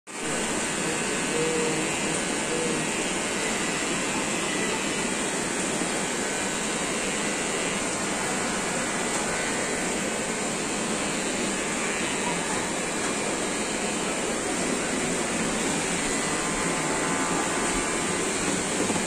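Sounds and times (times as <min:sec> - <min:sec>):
electric hair clipper buzzing: 0:00.3 - 0:10.0, 0:14.5 - 0:19.0.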